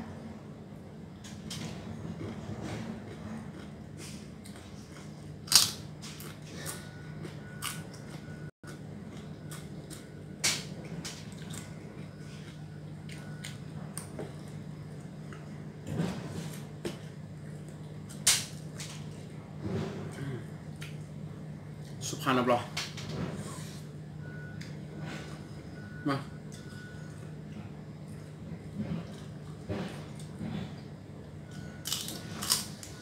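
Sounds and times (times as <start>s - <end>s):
steady low hum: 0.0s - 33.0s
crackers crunching while chewed: 3.0s - 15.5s, 31.8s - 33.0s.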